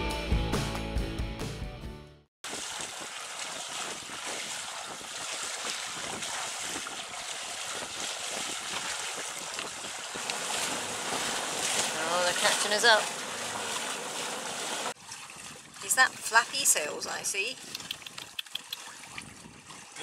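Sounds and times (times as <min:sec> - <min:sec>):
sea water washing: 0:02.4 - 0:20.0
wind across microphone: 0:03.7 - 0:10.3, 0:19.0 - 0:20.0.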